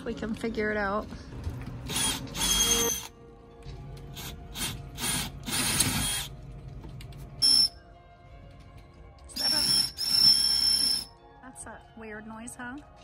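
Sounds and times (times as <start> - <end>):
cordless drill grinding metal: 1.9 - 3.1, 4.1 - 6.3, 9.4 - 11.1.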